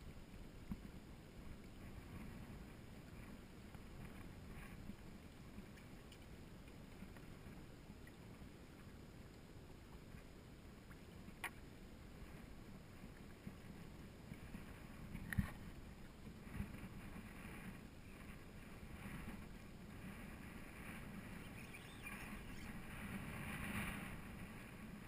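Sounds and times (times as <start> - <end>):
faint rumble of wind and water: 0.0 - 25.0.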